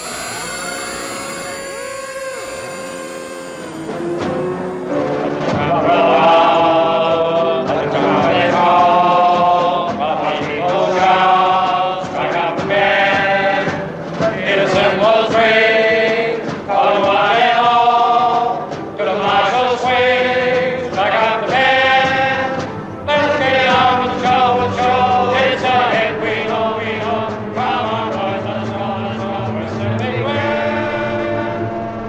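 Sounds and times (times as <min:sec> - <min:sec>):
male chorus singing: 0:00.0 - 0:32.0.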